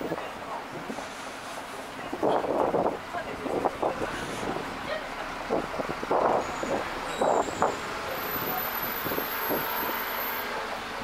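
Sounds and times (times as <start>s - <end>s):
traffic rushing: 0.0s - 11.0s
wind on microphone: 2.0s - 4.8s, 5.5s - 7.8s.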